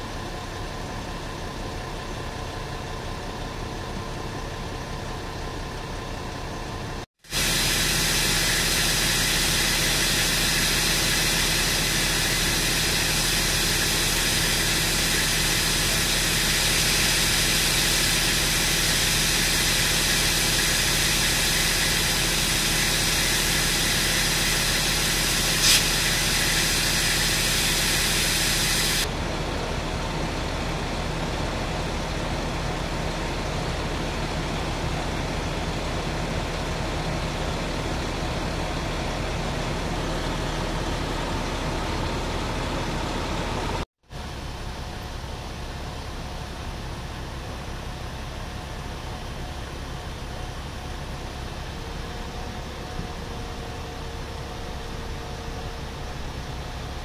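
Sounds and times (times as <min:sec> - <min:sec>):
fire truck engines idling: 0:00.0 - 0:57.0
high hiss: 0:07.3 - 0:29.1.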